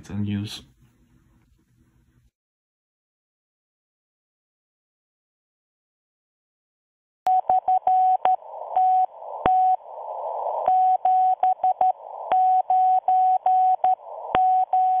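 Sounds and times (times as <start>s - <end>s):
morse code beeps: 7.3s - 9.8s, 10.7s - 15.0s
static hiss: 7.6s - 14.8s.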